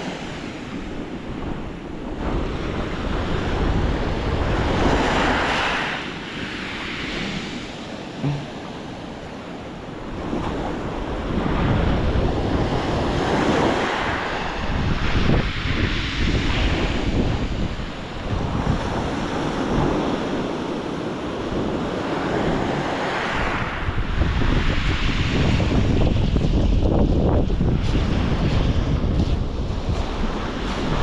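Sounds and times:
waves breaking on shore: 0.0 - 31.0
wind buffeting microphone: 0.0 - 31.0.

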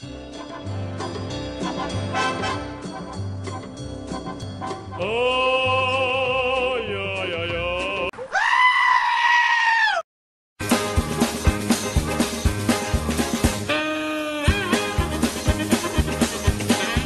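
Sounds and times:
upbeat rhythmic music: 0.0 - 8.1, 10.6 - 17.0
wavering bleat-like cry: 8.3 - 10.0.

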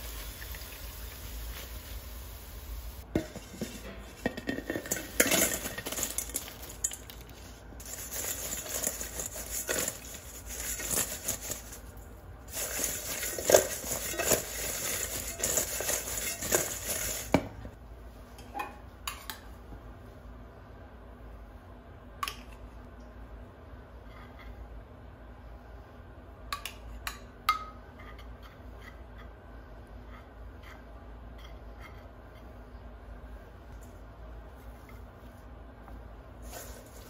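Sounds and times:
potato wedges rattling in metal bowl: 4.3 - 17.3.

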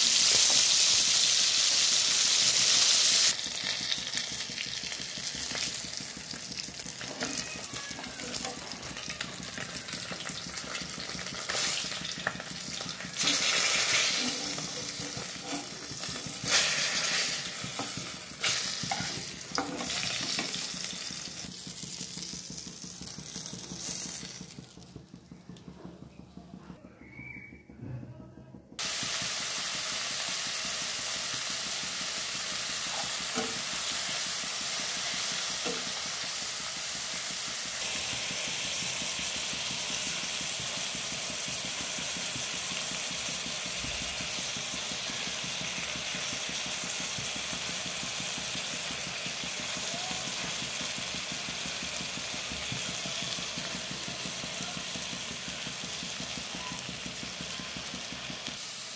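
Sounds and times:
onions sizzling in oil: 0.0 - 25.2, 28.8 - 58.9
oil sizzling in a frying pan: 0.0 - 25.5, 28.8 - 58.9.

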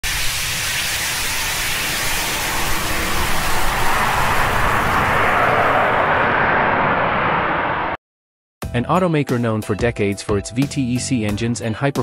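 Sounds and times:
rocket engine rushing roar: 0.0 - 8.0.

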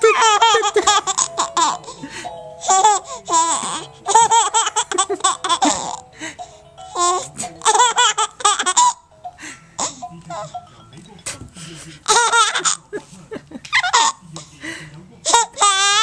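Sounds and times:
baby laughing: 0.0 - 2.0, 2.6 - 6.0, 6.9 - 9.1, 12.0 - 14.2, 15.3 - 16.0
music playing: 0.0 - 14.7.

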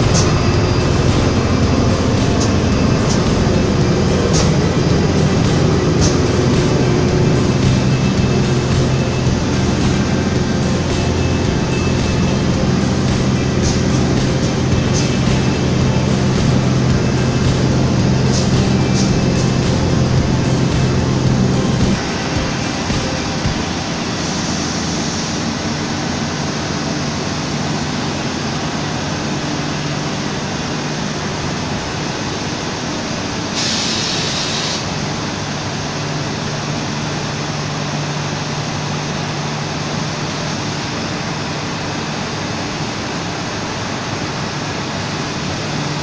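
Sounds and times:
sharp hiss: 0.0 - 25.8, 33.5 - 35.0
low steady hum: 0.0 - 33.4
spinning mill machinery whirring: 0.0 - 46.0.

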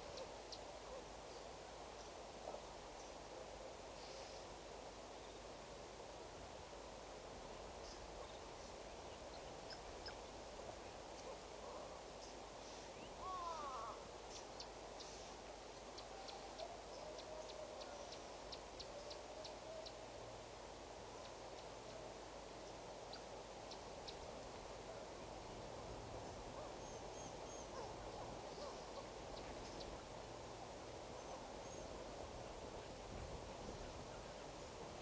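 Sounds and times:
faint outdoor ambience: 0.0 - 35.0
soft wavering calls: 9.4 - 20.2, 26.3 - 30.1.

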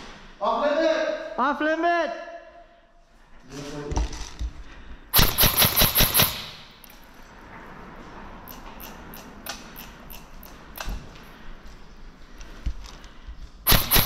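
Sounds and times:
airsoft gun rapid firing: 5.2 - 6.8, 13.7 - 14.0.

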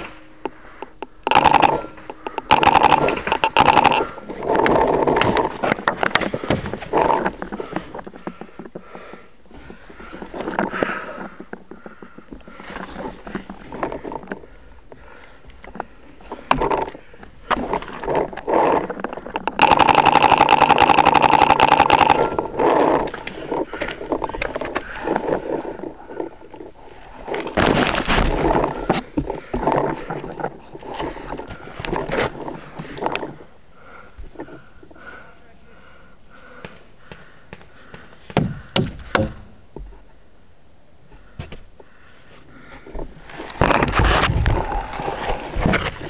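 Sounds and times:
paintball markers firing: 2.4 - 4.0, 19.5 - 22.4
handling pops and knocks: 38.3 - 40.0.

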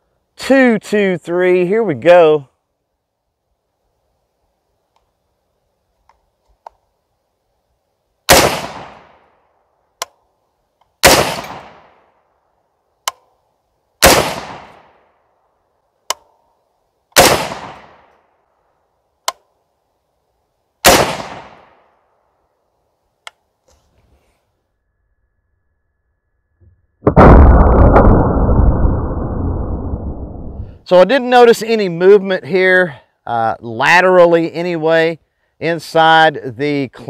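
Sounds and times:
faint sharp click: 4.9 - 5.1
rifle shots: 8.3 - 9.2, 11.0 - 11.9, 14.0 - 14.9, 17.2 - 18.0, 20.8 - 21.8.

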